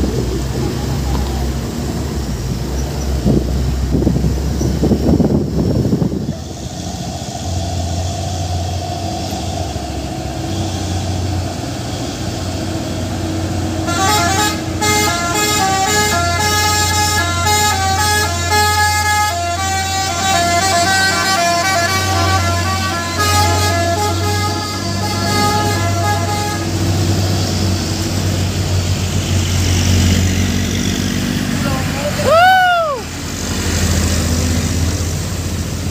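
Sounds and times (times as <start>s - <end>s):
diesel engine drone: 0.0s - 35.9s
truck musical horn playing a tune: 13.7s - 27.6s.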